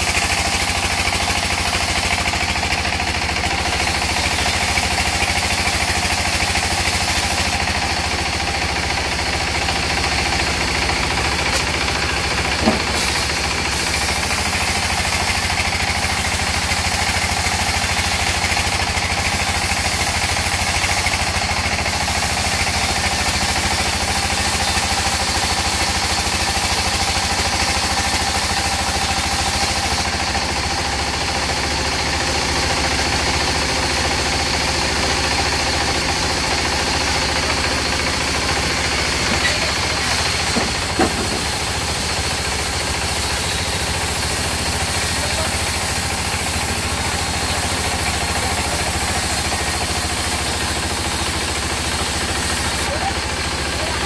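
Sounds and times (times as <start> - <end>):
band saw cutting log: 0.0 - 54.0
sharp knock: 12.6 - 13.0.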